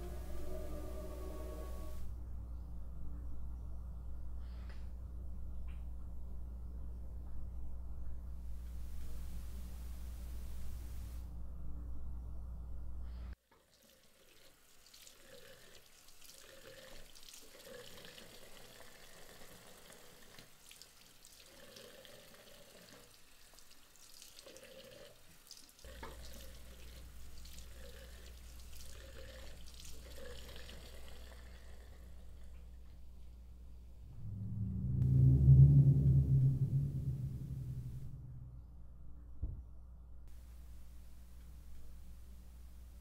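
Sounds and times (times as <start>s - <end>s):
low hum: 0.0s - 13.4s, 31.9s - 43.0s
water running from a tap: 13.6s - 31.6s.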